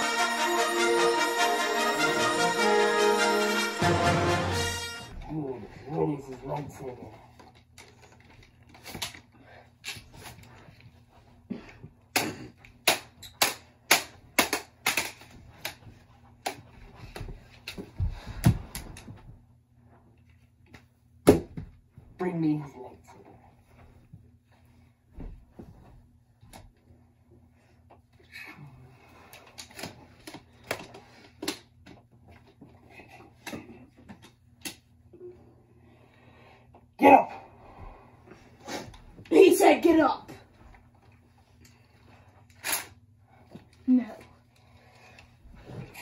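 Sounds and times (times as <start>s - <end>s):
plastic toy swords clacking: 12.1s - 15.8s.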